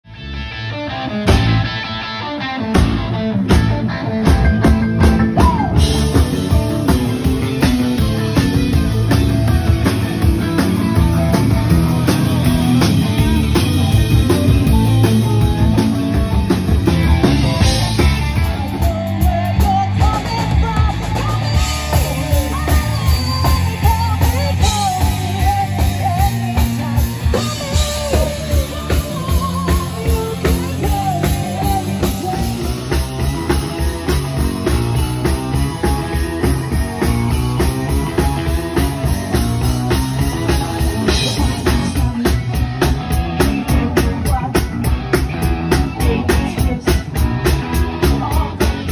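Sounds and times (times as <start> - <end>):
rock band playing: 0.0 - 48.9
woman singing lead: 5.0 - 7.0, 17.3 - 48.9.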